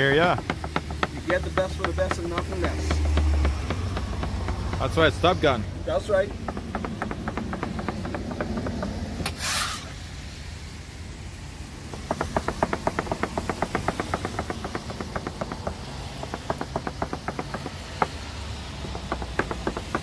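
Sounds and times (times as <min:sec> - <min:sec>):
knife chopping on cutting board: 0:00.4 - 0:04.9
brief hiss: 0:09.2 - 0:10.1.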